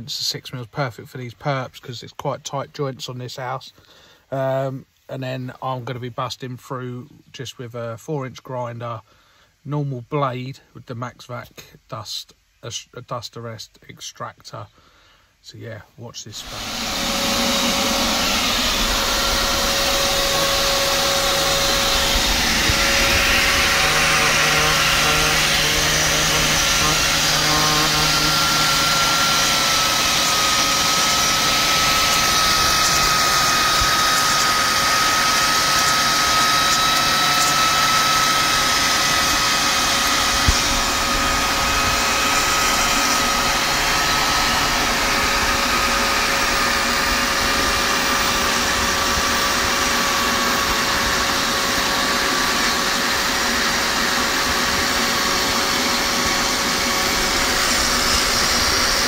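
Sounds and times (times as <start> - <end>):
angle grinder grinding mortar: 16.3 - 59.0
vacuum suction noise: 16.3 - 59.0.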